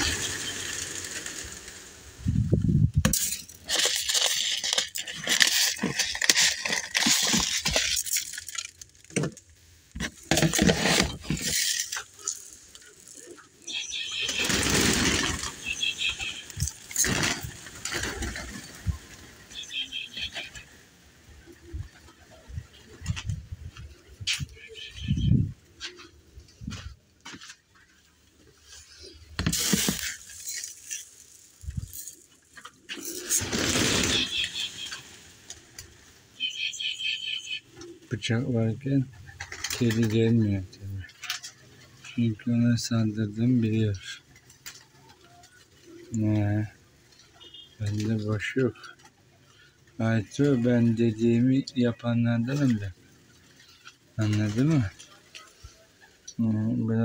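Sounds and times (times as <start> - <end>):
plastic tray and grains rustling: 3.6 - 9.4, 10.0 - 13.2, 29.4 - 35.2.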